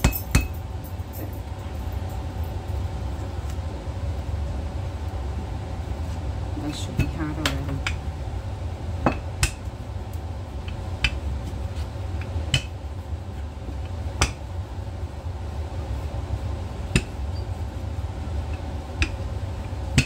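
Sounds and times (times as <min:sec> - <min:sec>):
rolling pin working dough: 0:08.7 - 0:20.0.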